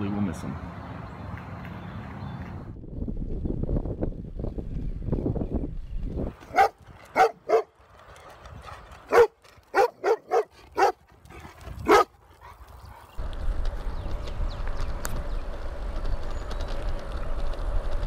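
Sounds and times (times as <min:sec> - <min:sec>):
dog barking: 0:06.5 - 0:07.7, 0:09.1 - 0:11.0, 0:11.9 - 0:12.6.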